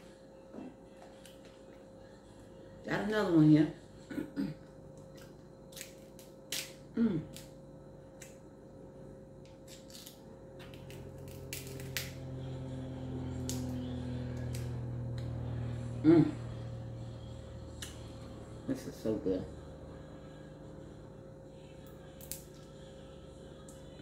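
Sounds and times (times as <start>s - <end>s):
low steady hum: 0.0s - 24.0s
crab shells cracking: 5.1s - 7.5s, 9.6s - 12.2s, 13.4s - 13.8s, 22.2s - 22.6s.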